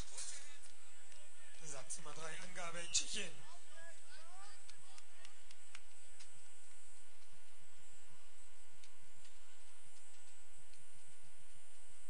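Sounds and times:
steady hum and hiss: 0.0 - 12.0
faint ticks: 8.8 - 11.8.

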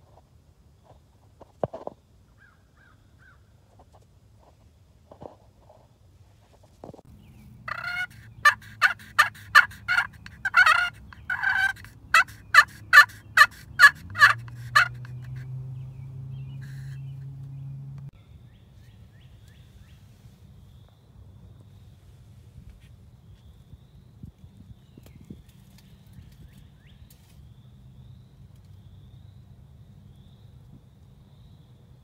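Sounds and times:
turkey call yelps: 7.7 - 15.5, 16.6 - 17.0.

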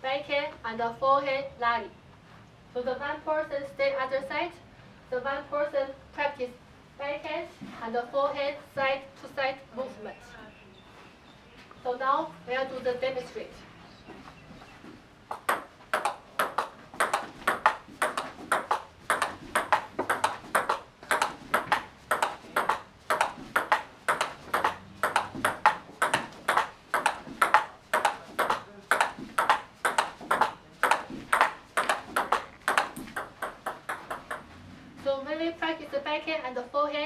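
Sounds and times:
table tennis ball clicking: 15.3 - 34.5.

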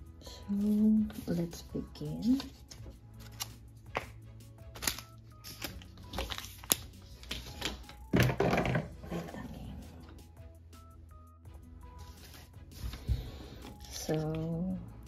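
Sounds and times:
light background music: 0.0 - 15.0
packaging rustle: 4.8 - 7.9
plastic parts clicking and knocking: 8.1 - 9.0.

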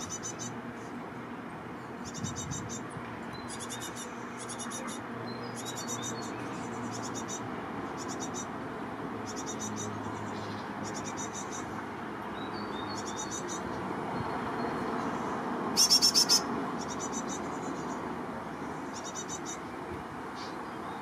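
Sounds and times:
birds calling high notes: 9.2 - 21.0.

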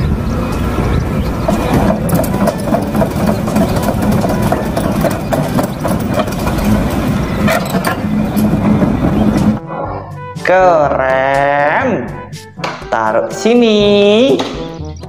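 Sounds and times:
diesel engine idling: 0.0 - 9.6.

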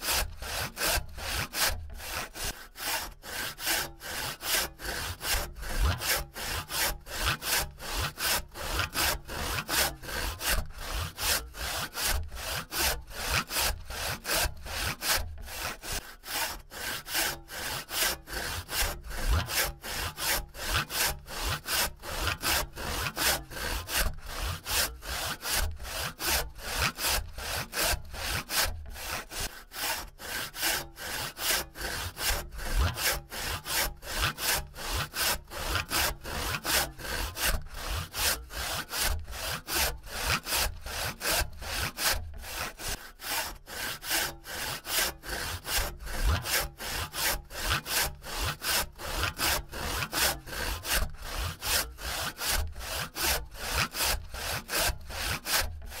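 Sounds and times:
hand saw cutting wood: 0.0 - 56.0.

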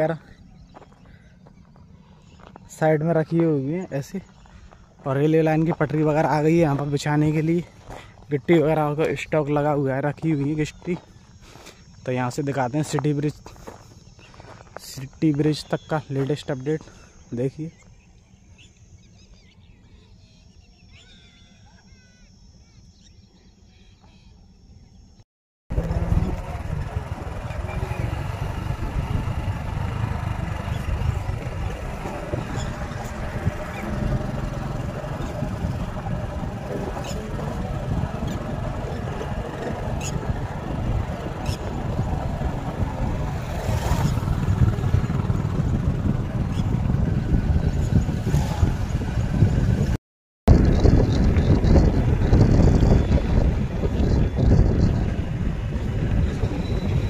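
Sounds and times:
bird chirps: 0.0 - 8.5, 9.2 - 25.2, 27.8 - 42.1
moving vehicle rumble: 0.0 - 57.0
wind buffeting microphone: 25.7 - 57.0.

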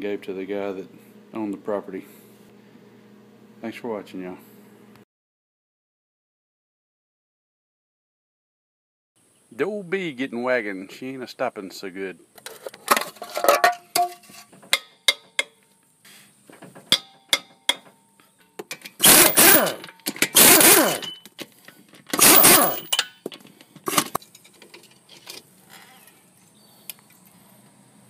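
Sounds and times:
impact wrench bursts: 19.0 - 21.3, 22.1 - 23.1.

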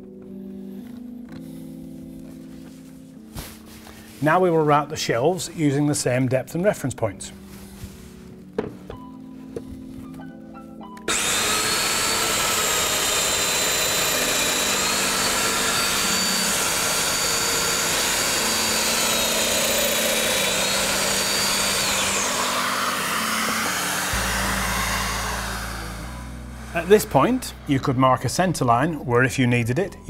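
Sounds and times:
air drawn through dust hose: 11.1 - 28.4
joiner motor whining: 11.1 - 29.0.

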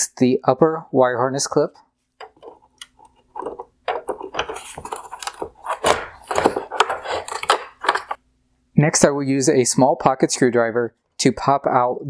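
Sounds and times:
plastic clicks and scrapes: 2.2 - 8.2.

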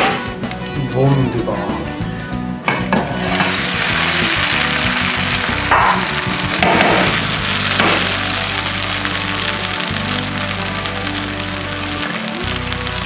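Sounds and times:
food sizzling in hot oil: 2.7 - 13.0.

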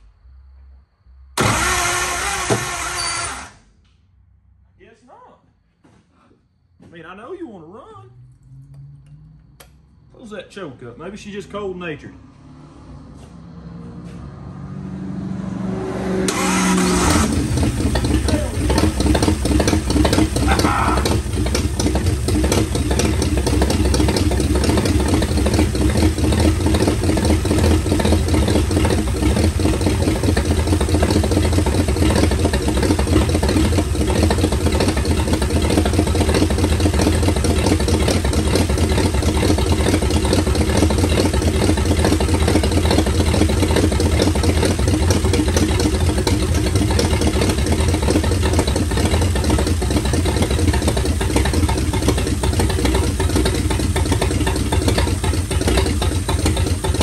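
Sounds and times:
truck engine running: 16.3 - 57.0
fuel pouring: 45.0 - 57.0.

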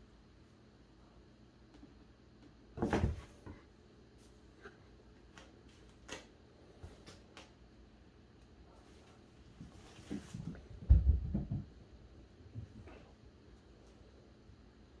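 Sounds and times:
thump and rustle: 2.8 - 3.6
cats scuffling with play cube: 8.8 - 11.7.

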